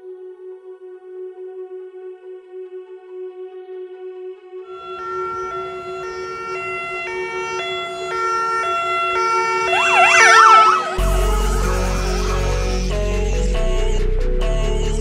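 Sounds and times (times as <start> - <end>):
emergency siren yelping: 4.7 - 13.5
electronic music: 4.8 - 14.0
heavy bass beat: 10.8 - 15.0.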